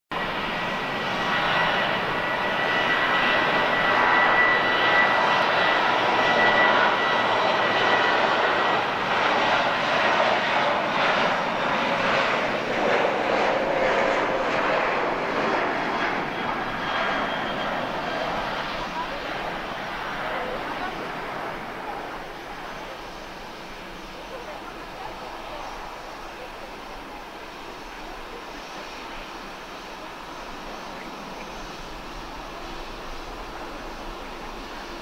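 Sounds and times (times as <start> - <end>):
jet airliner flying past: 0.1 - 35.0.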